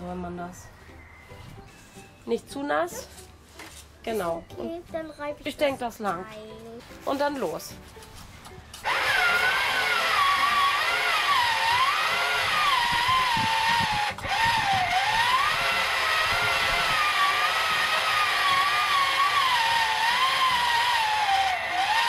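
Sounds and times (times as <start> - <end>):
toy pottery wheel motor whining: 8.7 - 22.0.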